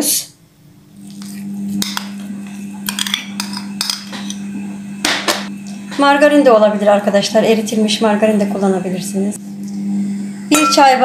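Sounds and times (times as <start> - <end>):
steady low hum: 0.3 - 11.0.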